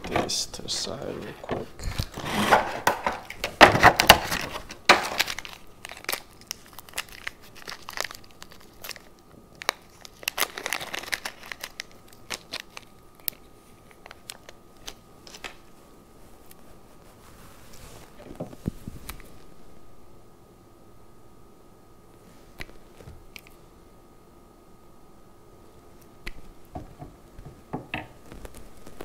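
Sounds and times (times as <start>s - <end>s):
plastic packaging crinkling: 1.7s - 19.5s, 28.2s - 29.0s.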